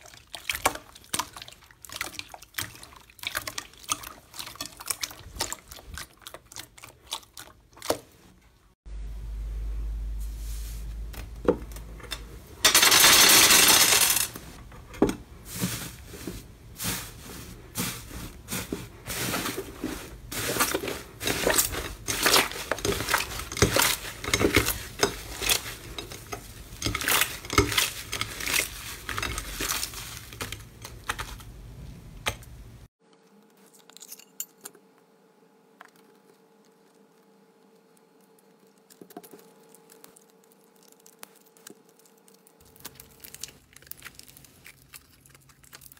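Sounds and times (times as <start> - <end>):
faint steady hum: 8.4 - 45.9
slime crackling and tearing: 39.7 - 45.9.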